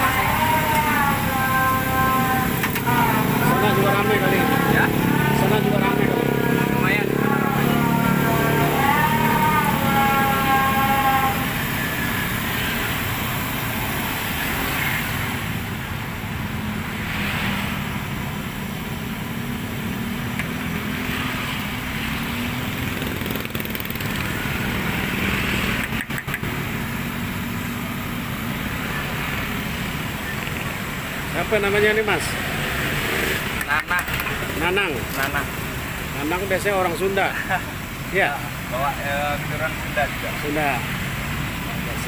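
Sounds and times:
motor traffic: 0.0 - 42.0.

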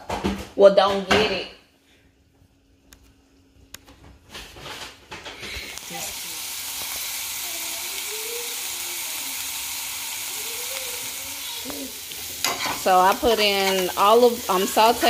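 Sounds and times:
vegetables sizzling in a frying pan: 5.4 - 15.0.

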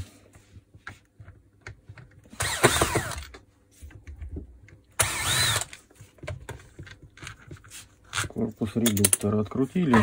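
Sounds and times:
cordless screwdriver whining: 2.4 - 3.3, 5.0 - 5.8.

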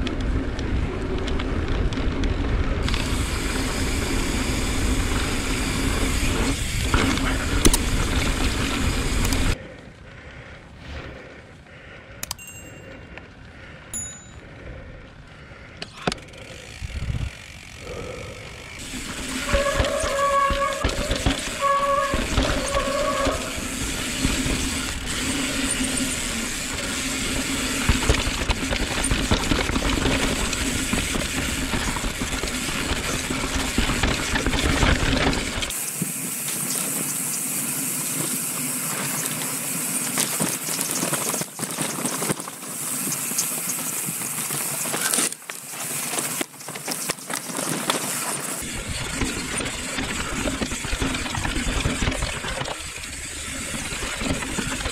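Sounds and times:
bike tyres crunching over stones: 0.0 - 9.6, 18.7 - 54.9
bike rattling: 0.0 - 54.9
wind noise on camera: 16.8 - 17.4.

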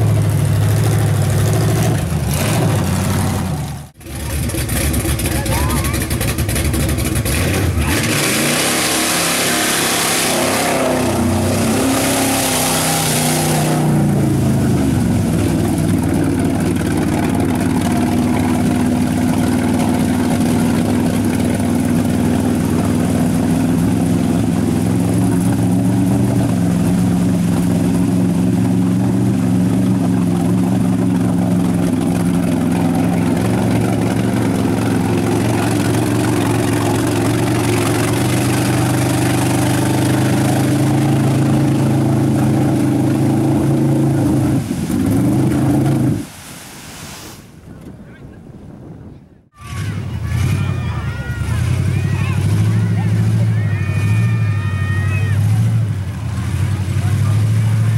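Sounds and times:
truck engine revving: 0.0 - 46.3, 49.5 - 57.9
tyres churning through mud: 0.0 - 47.0, 49.6 - 57.9.

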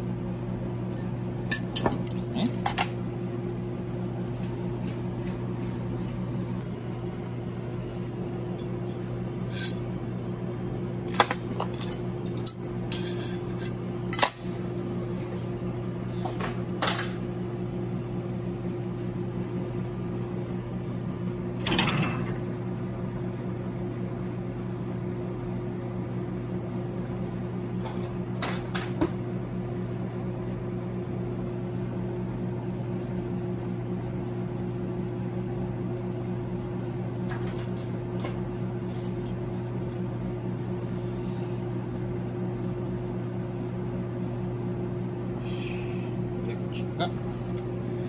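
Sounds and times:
kitchen machinery hum: 0.0 - 48.0.

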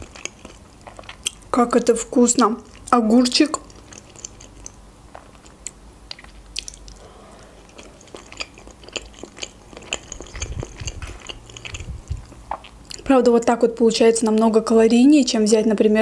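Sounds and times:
chewing crisp cucumber: 0.0 - 13.5
wet mouth clicks: 2.8 - 7.1, 7.7 - 13.1.

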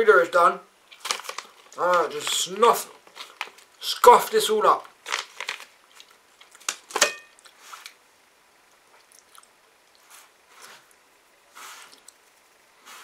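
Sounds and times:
packet crinkling: 0.8 - 7.1
faint packet rustles: 0.8 - 8.0.

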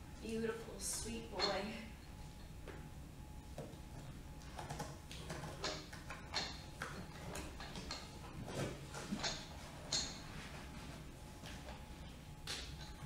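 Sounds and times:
objects clicking and rustling: 4.4 - 10.7.

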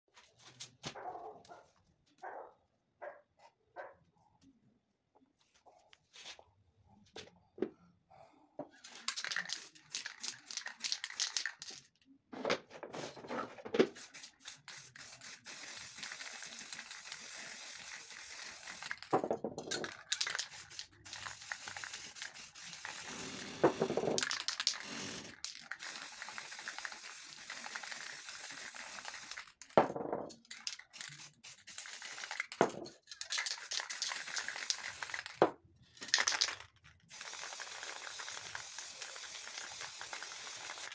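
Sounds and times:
spray paint cans hissing: 8.9 - 11.8, 13.9 - 19.1, 19.7 - 29.7, 30.4 - 35.4, 36.0 - 40.9.

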